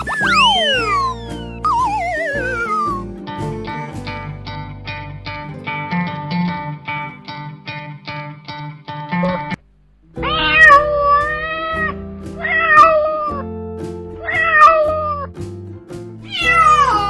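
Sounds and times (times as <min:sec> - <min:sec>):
background music: 0:00.0 - 0:17.0
cat meowing: 0:10.2 - 0:13.4, 0:14.2 - 0:15.3, 0:16.2 - 0:17.0.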